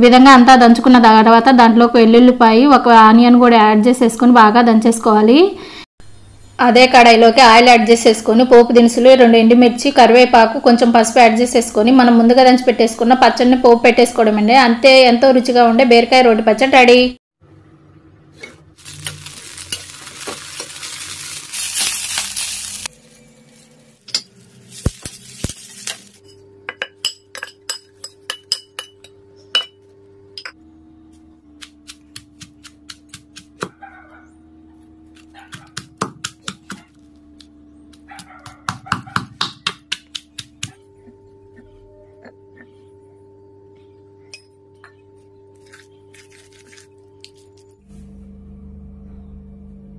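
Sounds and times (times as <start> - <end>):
oil sizzling in a pan: 18.8 - 23.7
pestle pounding in stone mortar: 31.6 - 33.8, 35.2 - 37.0, 37.9 - 40.8.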